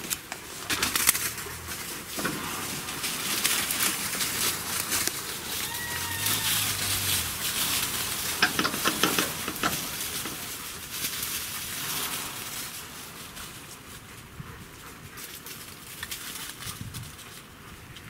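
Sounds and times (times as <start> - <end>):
dogs running through dry leaves: 0.0 - 18.0.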